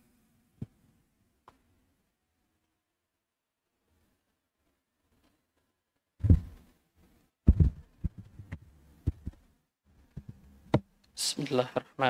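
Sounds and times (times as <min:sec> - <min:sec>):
microphone thumps and knocks: 0:06.2 - 0:06.7, 0:07.4 - 0:09.4, 0:10.1 - 0:10.9.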